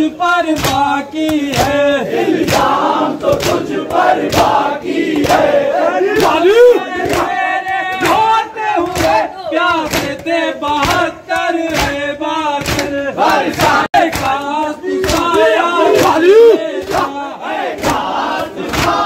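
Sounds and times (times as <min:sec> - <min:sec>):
men chanting together: 0:00.0 - 0:19.0
hands beating chests: 0:00.5 - 0:17.2.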